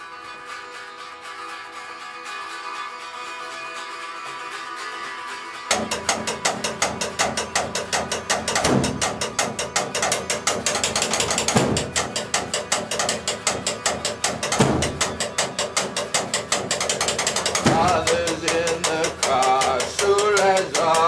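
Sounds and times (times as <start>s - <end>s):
fast ratchet-like clicking: 5.7s - 21.0s
person singing: 17.5s - 21.0s.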